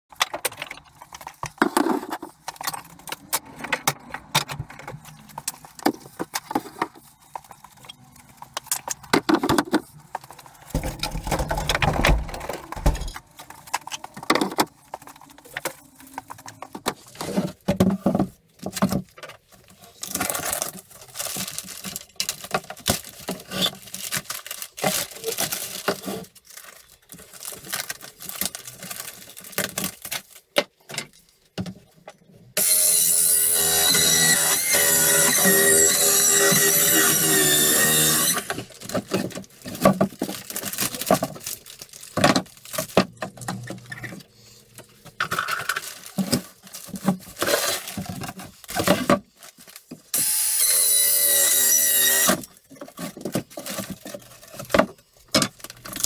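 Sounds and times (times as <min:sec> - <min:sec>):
wood and tools knocking and clattering: 0:00.1 - 0:19.4, 0:36.4 - 0:44.3.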